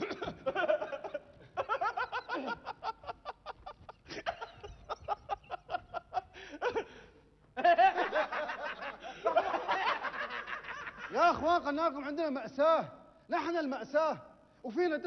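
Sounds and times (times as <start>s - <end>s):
person laughing: 0.0s - 11.2s.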